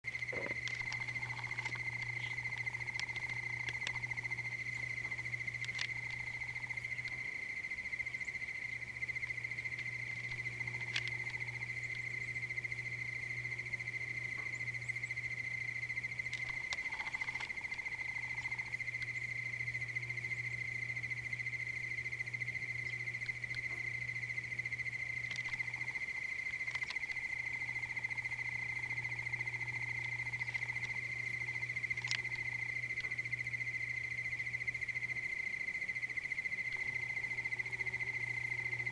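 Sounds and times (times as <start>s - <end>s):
insects trilling: 0.0s - 38.9s
low hum: 0.0s - 38.9s
faint clicks: 0.1s - 7.3s, 22.8s - 33.4s.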